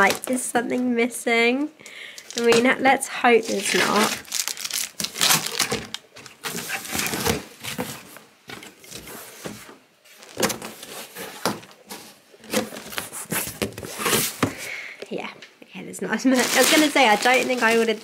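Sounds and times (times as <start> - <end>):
plastic bags crinkling: 0.0 - 0.6, 2.0 - 2.8, 3.4 - 9.0, 10.1 - 11.2, 16.3 - 18.0
cardboard box scraping and crackling: 3.4 - 5.8, 6.4 - 8.1, 8.9 - 14.6, 16.4 - 18.0.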